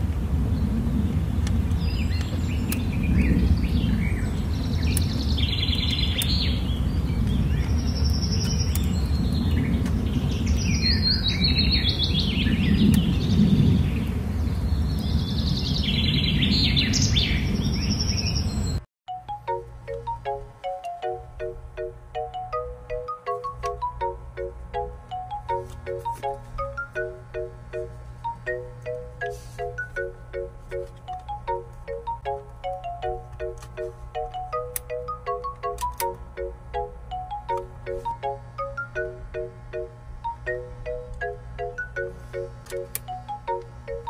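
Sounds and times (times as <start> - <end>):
birds chirping and trilling: 1.8 - 18.8
bright plucked melody: 19.1 - 44.0.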